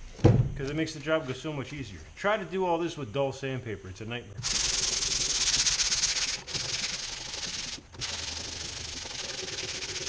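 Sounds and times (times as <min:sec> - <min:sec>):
hand sanding with sandpaper: 0:04.4 - 0:10.0.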